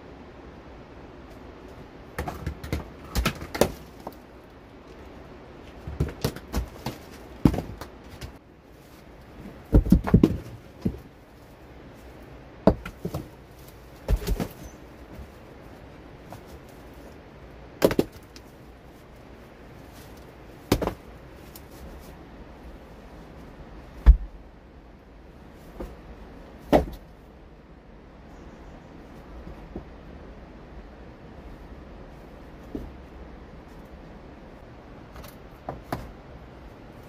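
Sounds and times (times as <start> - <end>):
stones knocking against stones: 2.2 - 4.2, 5.7 - 8.4, 9.6 - 11.1, 12.6 - 13.4, 14.0 - 14.7, 17.8 - 18.4, 20.7 - 21.0.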